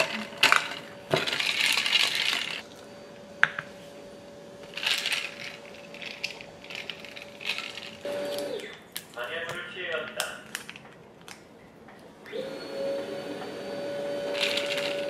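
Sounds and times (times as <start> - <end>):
ice cubes clinking in glass: 0.0 - 2.6, 4.7 - 8.4, 14.3 - 15.0.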